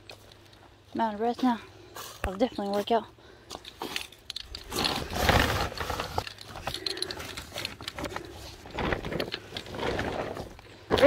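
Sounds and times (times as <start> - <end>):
plastic tarp rustling and crinkling: 4.6 - 10.6
heavy breathing: 6.4 - 8.9.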